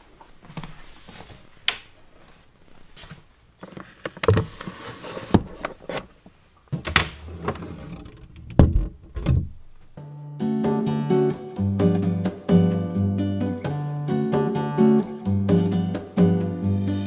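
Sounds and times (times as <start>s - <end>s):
cabinet door shutting: 6.8s - 9.6s.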